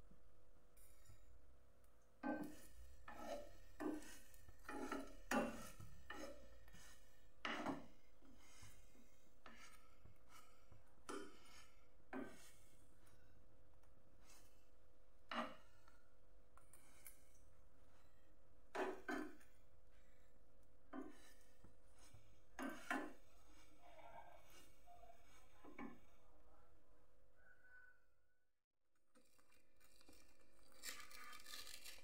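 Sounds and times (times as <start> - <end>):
spoon scraping toasted crust: 2.4 - 7.6, 9.5 - 12.7, 21.0 - 23.8, 29.2 - 32.0.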